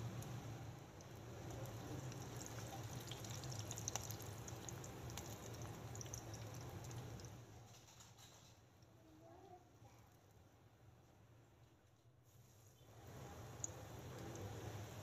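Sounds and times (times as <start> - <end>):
hot oil sizzling and crackling: 0.0 - 8.3, 12.9 - 15.0
oil popping: 1.0 - 7.4.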